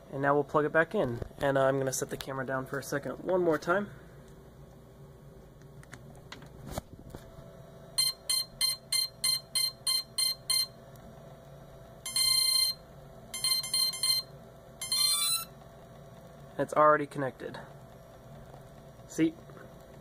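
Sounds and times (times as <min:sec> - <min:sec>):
drone short beeps: 0:13.4 - 0:15.5.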